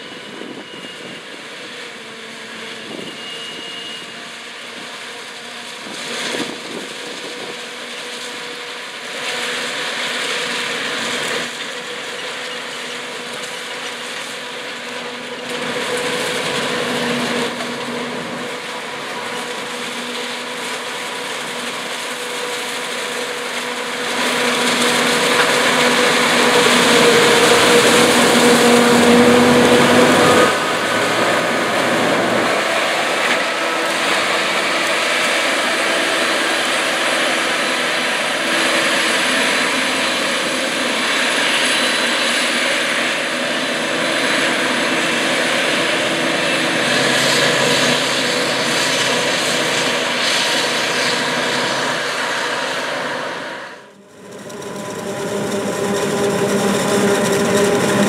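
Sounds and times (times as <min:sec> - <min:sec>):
forage harvester running: 0:00.0 - 0:58.0
high whining tones: 0:23.8 - 0:58.0.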